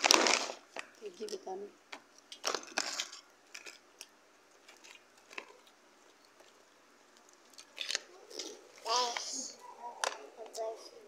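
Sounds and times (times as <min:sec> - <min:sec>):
plastic wrapper rustling: 0:00.0 - 0:01.4, 0:02.2 - 0:08.5.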